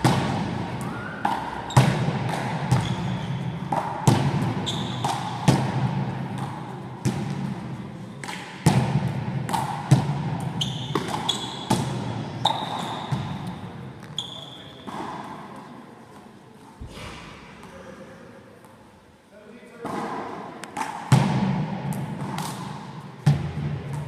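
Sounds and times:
sports shoes squeaking on floor: 0:00.9 - 0:02.0, 0:02.7 - 0:03.7, 0:04.5 - 0:05.4, 0:10.6 - 0:15.2.

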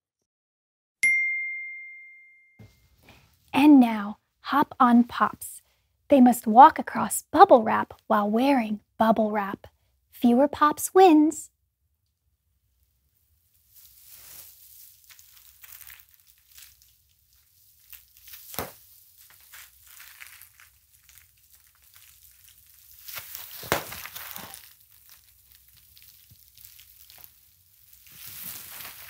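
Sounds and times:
bubble wrap crinkling: 0:12.7 - 0:29.0
bubble wrap popping: 0:12.8 - 0:29.0.

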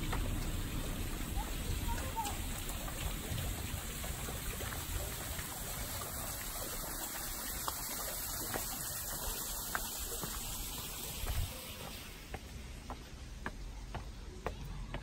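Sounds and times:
running water trickling: 0:00.0 - 0:15.0
faint footsteps: 0:06.9 - 0:15.0.

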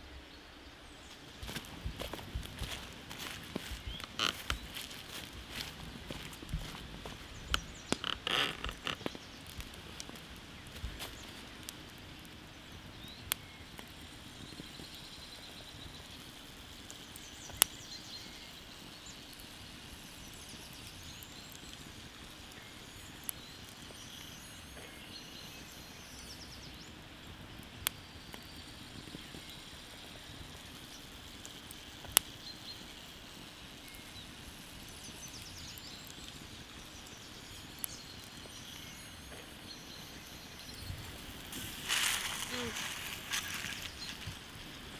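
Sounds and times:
quiet outdoor hiss: 0:00.0 - 0:44.9
embers burning: 0:00.1 - 0:44.9
fire popping: 0:00.8 - 0:44.9
faint bird chirps: 0:33.7 - 0:44.9.

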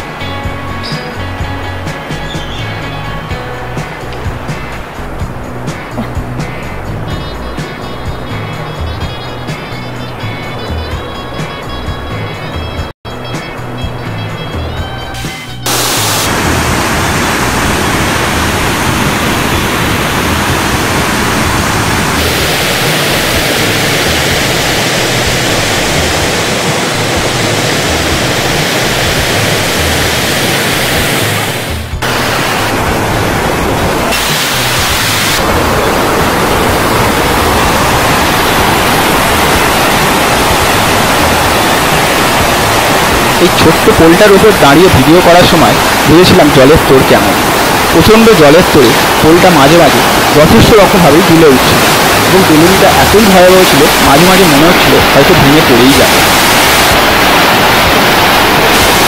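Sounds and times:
river rushing over boulders: 0:15.7 - 0:59.0.

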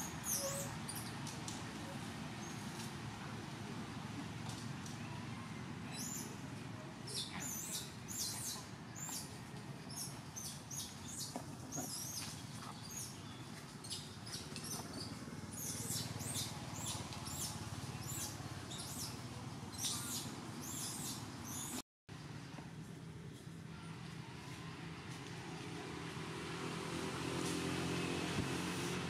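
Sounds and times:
baby macaque squealing: 0:00.2 - 0:00.8.

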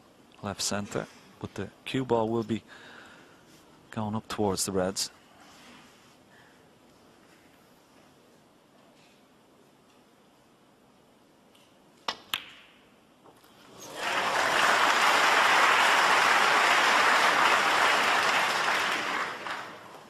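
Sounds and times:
audience applause: 0:13.7 - 0:20.0.

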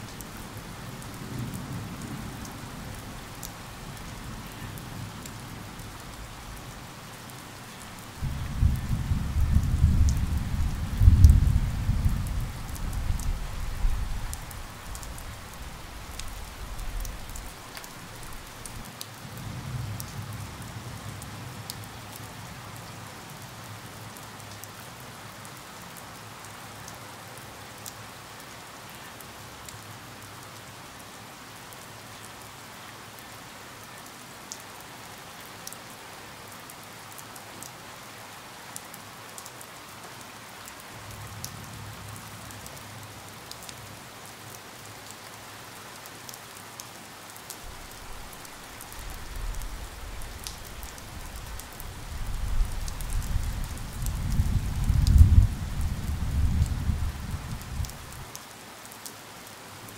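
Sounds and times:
rain drops clicking: 0:00.0 - 0:20.2, 0:38.7 - 0:59.9.

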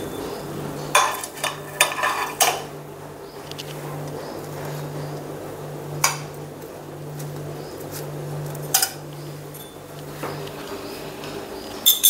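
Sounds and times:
steady low hum: 0:00.0 - 0:12.0
ceramic plate clinking: 0:00.9 - 0:02.7.

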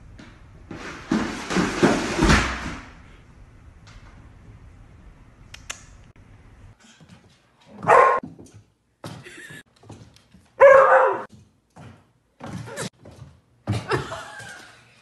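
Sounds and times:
basket clattering down wooden stairs: 0:00.7 - 0:02.9.

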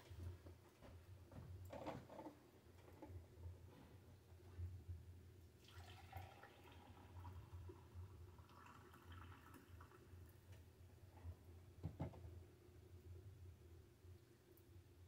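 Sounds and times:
low steady hum: 0:00.0 - 0:15.0
coffee poured into mug: 0:05.6 - 0:10.4.

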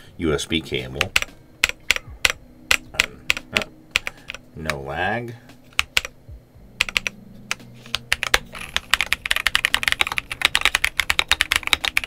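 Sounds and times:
mechanical keyboard typing: 0:01.0 - 0:04.8, 0:05.7 - 0:06.1, 0:06.8 - 0:12.0.

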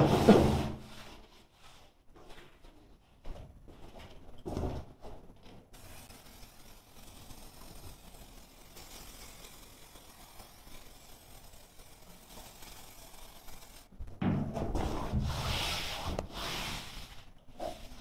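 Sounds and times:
aerosol can hissing: 0:05.7 - 0:14.1.

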